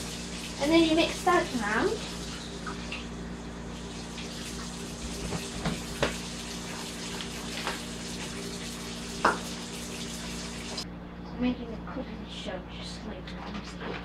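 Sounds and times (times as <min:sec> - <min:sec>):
tap water running into sink: 0:00.0 - 0:10.8.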